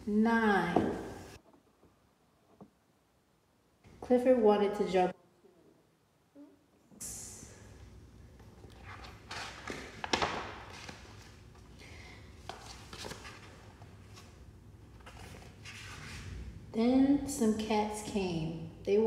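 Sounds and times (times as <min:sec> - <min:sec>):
low steady hum: 0:00.0 - 0:19.0
book pages turning: 0:12.5 - 0:16.0.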